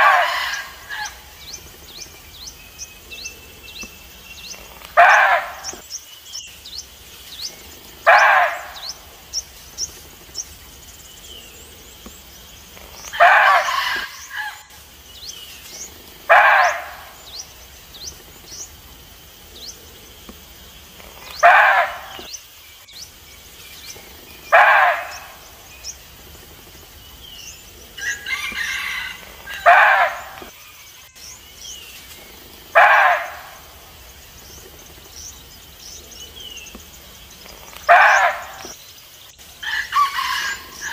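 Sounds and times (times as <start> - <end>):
deer barking: 0.0 - 1.2, 4.9 - 5.8, 8.0 - 9.0, 13.1 - 14.6, 16.3 - 17.2, 21.4 - 22.3, 24.5 - 25.4, 29.0 - 30.5, 32.7 - 33.7, 37.9 - 38.7
small birds chirping: 0.0 - 40.9.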